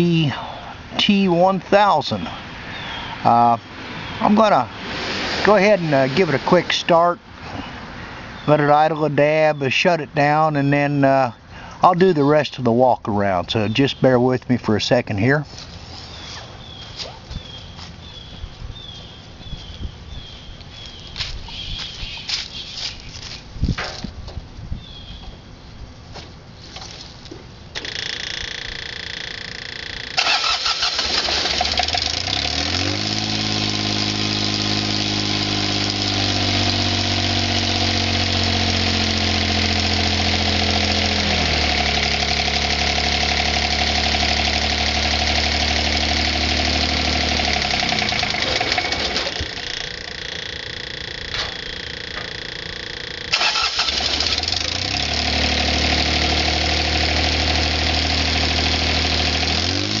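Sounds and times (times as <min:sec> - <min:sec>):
diesel tractor engine idling: 0:00.0 - 0:12.6, 0:27.7 - 1:00.0
engine starter cranking: 0:27.8 - 1:00.0.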